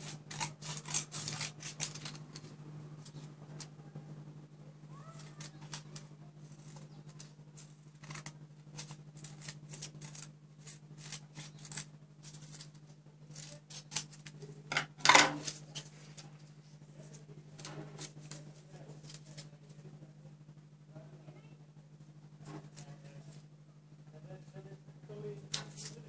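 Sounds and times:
paper strips rustling: 0.0 - 3.7, 5.1 - 19.7, 25.5 - 26.0
scissors snipping paper: 0.0 - 3.7, 5.0 - 14.5, 17.1 - 19.8, 25.5 - 26.0
steady low hum: 0.0 - 26.0.

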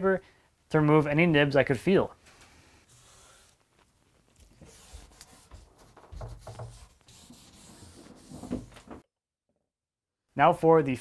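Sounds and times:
sandpaper rubbing on wood: 4.6 - 8.8.

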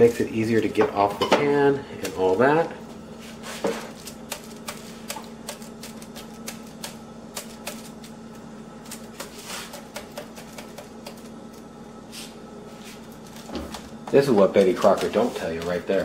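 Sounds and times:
spatula scraping and tapping foil: 14.2 - 16.0.

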